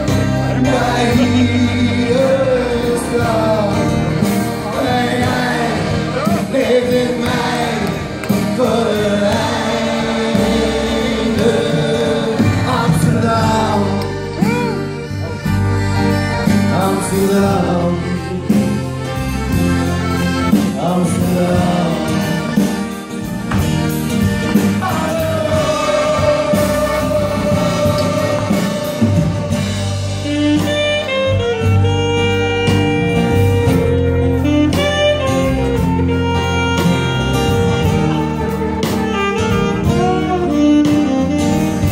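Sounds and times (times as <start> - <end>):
accordion: 0.0 - 41.9
acoustic guitar: 0.0 - 41.9
saxophone long held notes: 0.0 - 41.9
person singing: 24.7 - 31.1.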